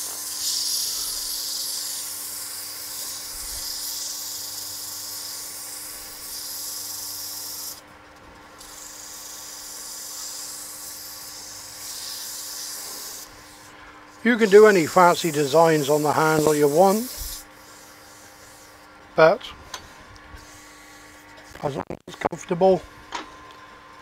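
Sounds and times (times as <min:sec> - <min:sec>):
sandpaper hissing on spinning wood: 0:00.0 - 0:07.8, 0:08.6 - 0:18.9.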